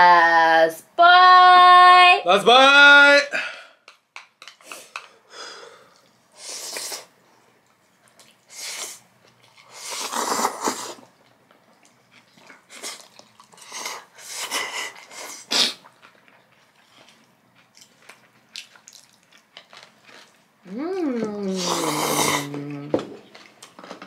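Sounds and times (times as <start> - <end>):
people slurping noodles: 9.6 - 11.1, 20.7 - 22.8.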